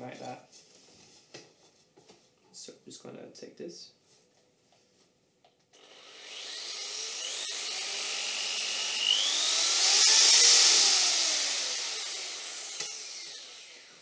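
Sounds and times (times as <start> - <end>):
electric drill boring into wood: 5.8 - 14.0.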